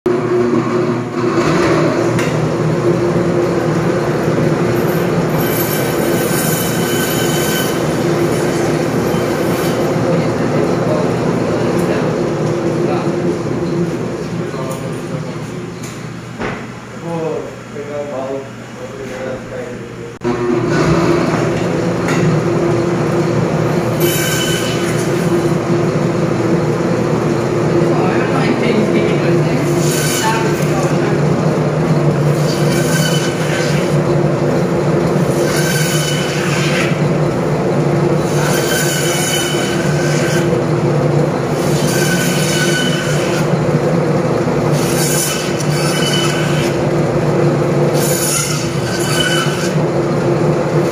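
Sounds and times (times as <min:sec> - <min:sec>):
band saw cutting meat: 0:00.1 - 0:14.0, 0:20.2 - 0:50.9
band saw screech: 0:04.8 - 0:10.0, 0:23.8 - 0:25.6, 0:29.6 - 0:30.7, 0:32.2 - 0:34.0, 0:35.2 - 0:37.1, 0:38.2 - 0:40.6, 0:41.5 - 0:43.5, 0:44.7 - 0:46.8, 0:48.0 - 0:49.8.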